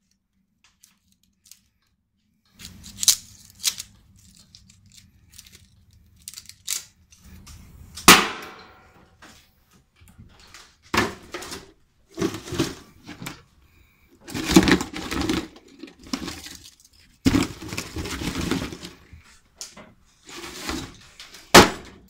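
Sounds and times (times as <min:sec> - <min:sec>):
copper coils clattering in plastic tub: 0:14.2 - 0:19.1.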